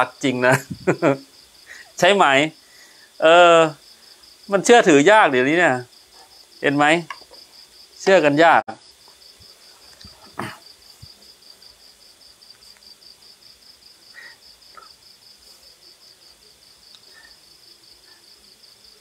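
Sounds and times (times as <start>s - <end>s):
cricket chirping: 0.0s - 19.0s.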